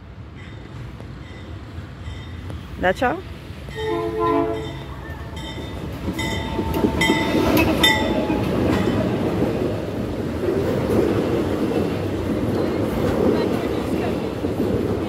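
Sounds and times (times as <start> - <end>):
diesel locomotive engine rumble: 0.0 - 15.0
wheels clattering over rails: 4.6 - 15.0.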